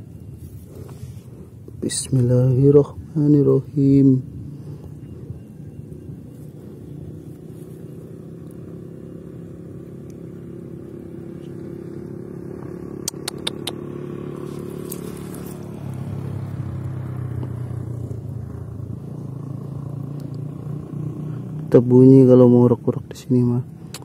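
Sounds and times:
small engine droning: 0:00.0 - 0:24.0
sharp clicks: 0:13.0 - 0:13.8.

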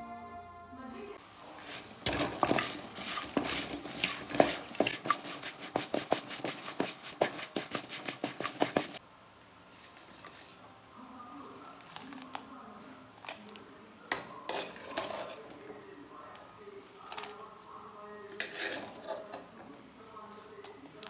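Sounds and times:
seeds rattling: 0:01.2 - 0:09.0
metal spatula scraping a pan: 0:01.4 - 0:09.0, 0:14.5 - 0:15.6, 0:18.3 - 0:19.5.

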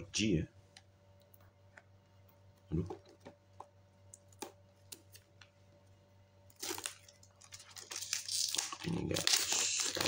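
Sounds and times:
plastic wrap crinkling and tearing: 0:06.5 - 0:10.0.

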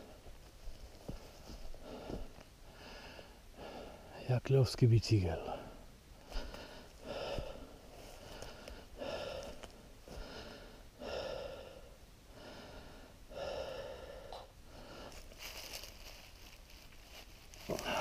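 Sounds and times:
person breathing hard: 0:01.1 - 0:04.1, 0:05.5 - 0:16.3, 0:17.6 - 0:18.0.

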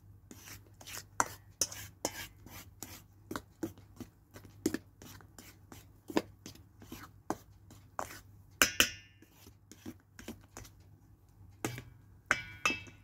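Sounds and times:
spoon scraping metal bowl: 0:00.3 - 0:03.0.

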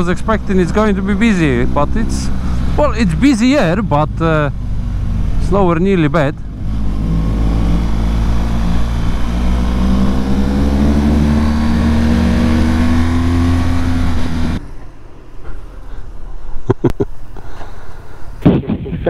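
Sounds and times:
motorcycle engine accelerating: 0:00.0 - 0:14.9.

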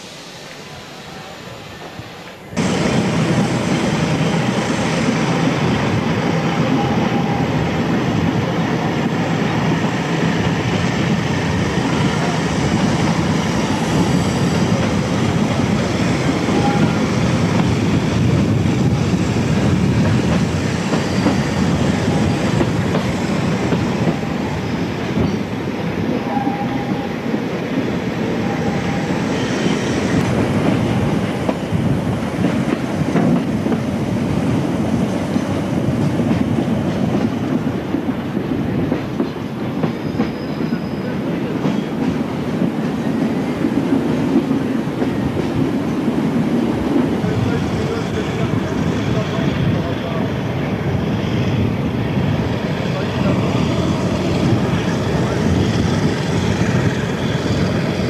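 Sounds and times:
train wheels clattering on rails: 0:02.3 - 0:50.9
faint wheel squeals: 0:40.0 - 0:41.2.

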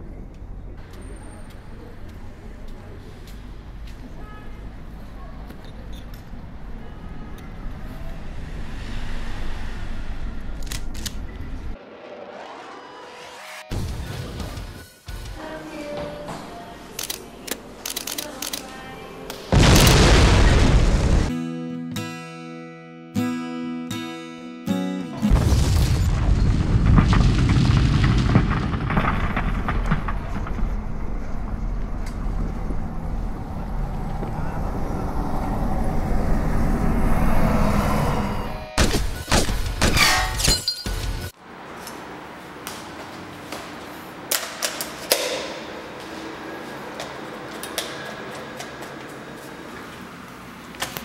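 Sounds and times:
camera clicks and clacks: 0:17.0 - 0:18.6
explosion boom and rumble: 0:19.5 - 0:21.3, 0:25.3 - 0:34.4
sharp cracks: 0:25.5 - 0:32.7.

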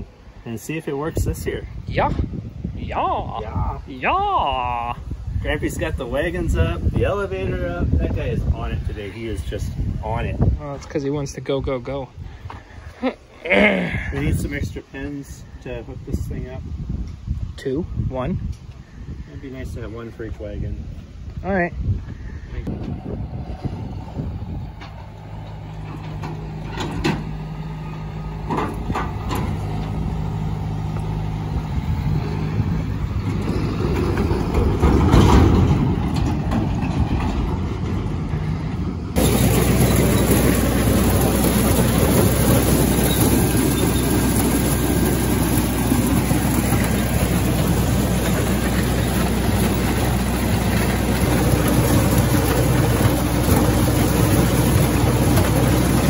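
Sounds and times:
farm machinery noise: 0:02.9 - 0:16.1, 0:22.1 - 0:56.0
tractor engine running: 0:22.6 - 0:56.0.

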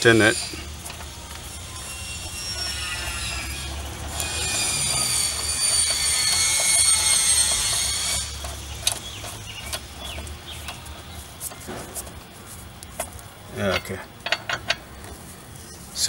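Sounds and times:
high-pitched metallic squeal: 0:00.0 - 0:10.3.

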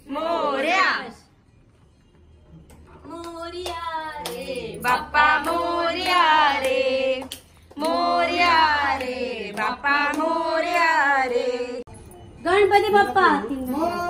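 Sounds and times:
voices singing devotional song: 0:00.0 - 0:01.3, 0:03.1 - 0:11.9
hand claps: 0:03.1 - 0:11.5.

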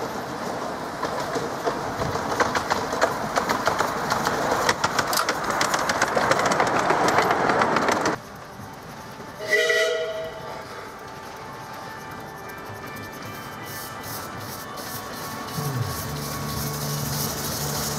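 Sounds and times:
train wheels clicking over rail joints: 0:00.0 - 0:17.9
steam locomotive whistle: 0:09.4 - 0:10.9.

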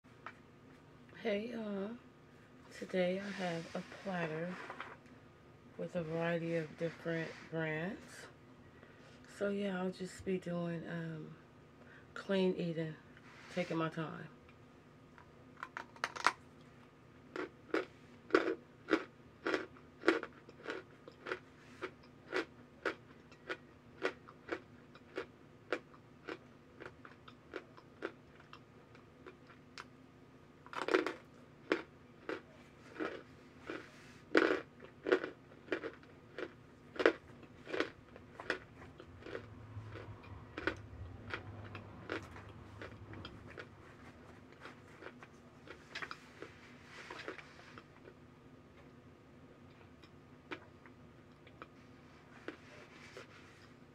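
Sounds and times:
crunchy chewing: 0:15.6 - 0:30.0, 0:30.6 - 0:49.0, 0:49.6 - 0:53.8.

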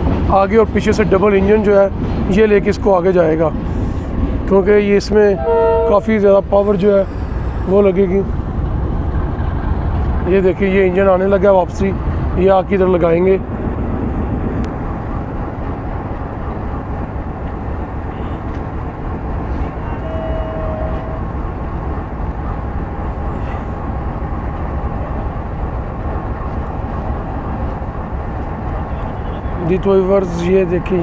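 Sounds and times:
diesel locomotive engine rumbling: 0:00.0 - 0:31.0
short faint tone: 0:05.4 - 0:06.3, 0:19.9 - 0:21.4.

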